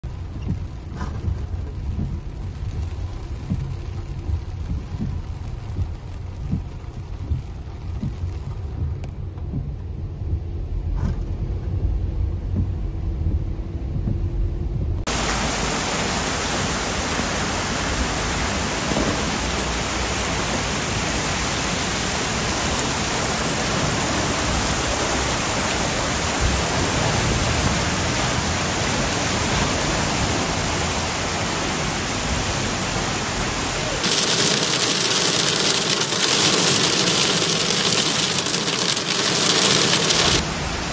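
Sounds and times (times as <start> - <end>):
rain on a driving car: 0.0 - 10.0, 15.1 - 40.9
heavy rain hissing: 15.1 - 40.9
rainwater running down steps: 15.1 - 40.9.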